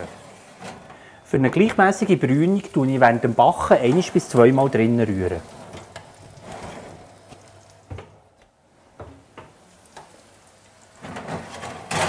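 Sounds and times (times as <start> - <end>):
food sizzling on a baking tray: 1.5 - 7.8, 9.2 - 12.0.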